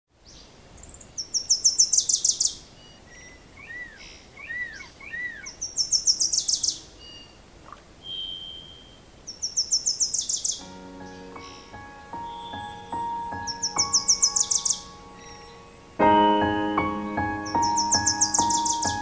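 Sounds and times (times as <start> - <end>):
bird high rapid trill: 6.3 - 9.0, 9.8 - 16.0, 16.7 - 19.0
bird whistled notes: 8.0 - 9.0
music: 10.6 - 19.0.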